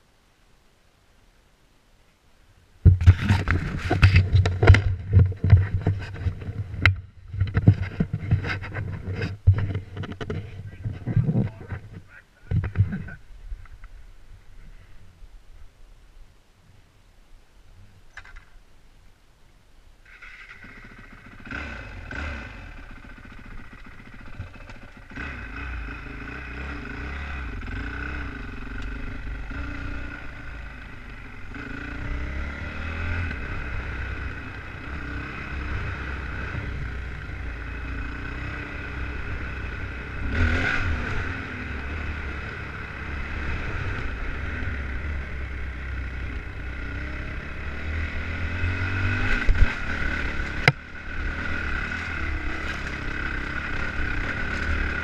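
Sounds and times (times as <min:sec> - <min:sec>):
dirt bike engine revving: 0:20.0 - 0:55.0.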